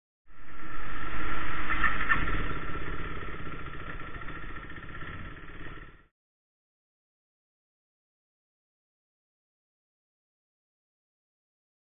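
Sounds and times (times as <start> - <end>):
motorcycle engine running: 1.7 - 6.1.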